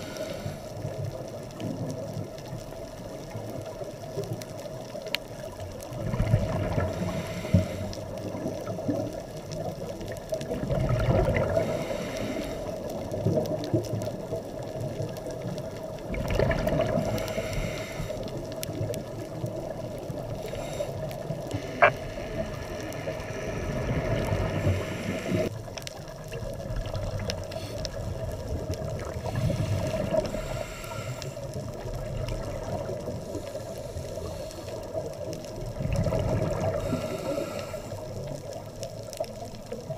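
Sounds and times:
steady underwater hum: 0.0 - 39.9
diver exhaling bubbles: 10.4 - 12.5, 16.1 - 19.2, 35.6 - 37.8.

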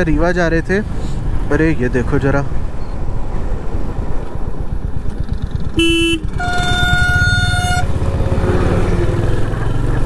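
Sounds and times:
motorcycle engine running: 4.7 - 10.0
motorcycle horn: 5.8 - 8.0.

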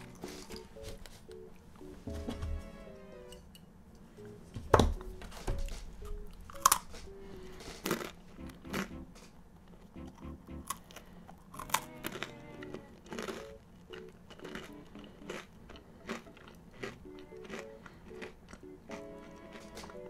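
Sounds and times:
quiet background music: 0.0 - 20.0
crunchy chewing: 6.3 - 8.9, 10.6 - 20.0.

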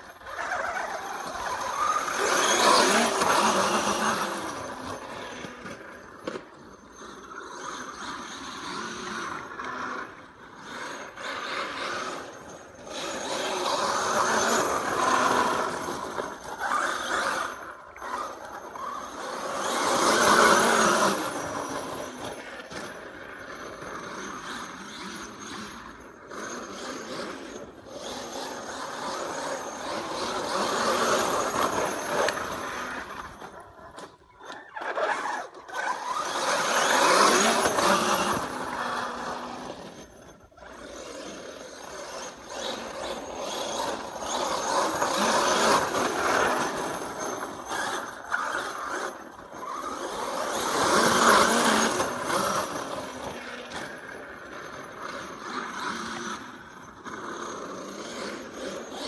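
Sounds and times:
rc truck motor whining: 0.0 - 59.0.

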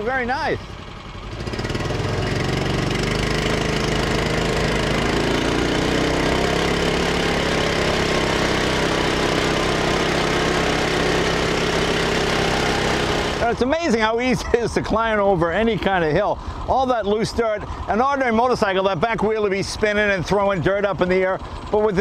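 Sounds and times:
motorbike engine running: 0.0 - 22.0.

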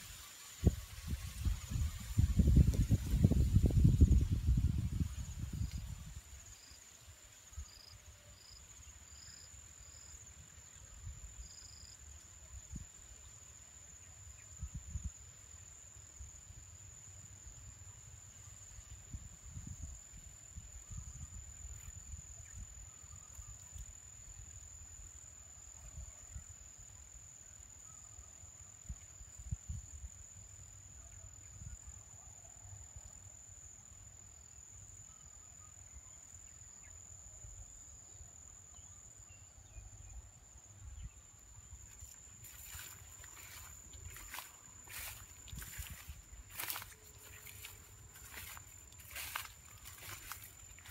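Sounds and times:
short insect chirps: 0.0 - 15.6, 34.6 - 50.9
insects trilling: 0.0 - 50.9.

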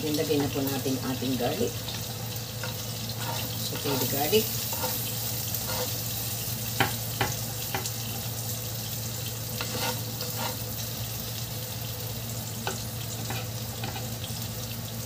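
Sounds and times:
garlic sizzling in hot oil: 0.0 - 15.0
spatula knocking against pan: 6.8 - 8.0.

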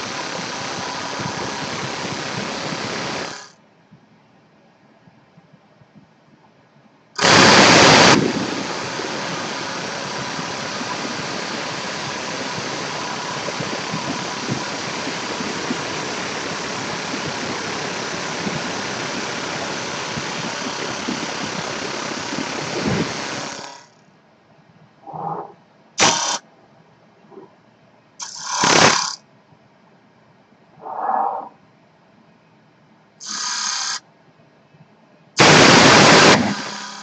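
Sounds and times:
lathe knife hissing on wood: 33.2 - 34.0.

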